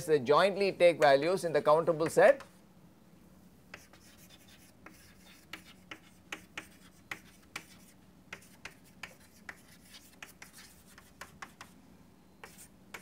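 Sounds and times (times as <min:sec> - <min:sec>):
chalk writing on chalkboard: 0:03.7 - 0:11.8, 0:12.4 - 0:13.0.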